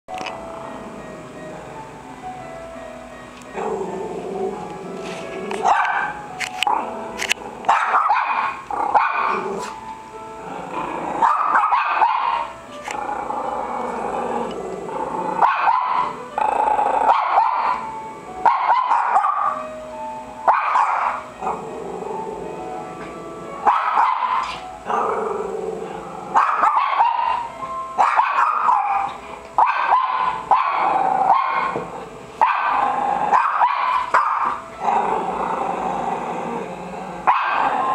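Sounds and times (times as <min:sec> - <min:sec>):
small dogs barking and whining: 0:05.0 - 0:06.9, 0:07.7 - 0:09.9, 0:11.1 - 0:13.0, 0:15.3 - 0:19.7, 0:20.4 - 0:22.3, 0:23.1 - 0:35.4, 0:37.2 - 0:37.9.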